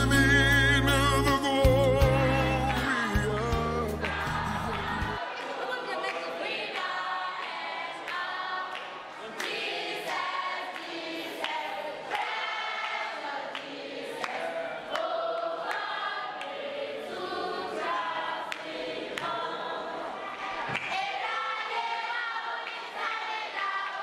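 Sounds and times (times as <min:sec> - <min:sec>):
girls choir singing: 0:02.4 - 0:24.0
hand claps: 0:02.6 - 0:05.2, 0:06.8 - 0:16.6.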